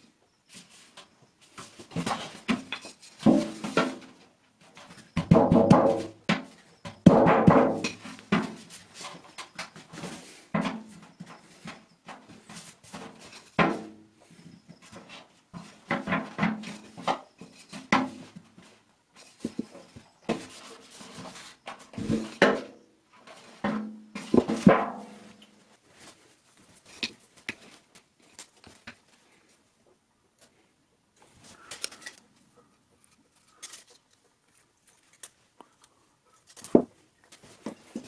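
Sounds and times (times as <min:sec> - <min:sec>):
knocks on metal trash can: 0:05.2 - 0:06.1, 0:07.0 - 0:08.0.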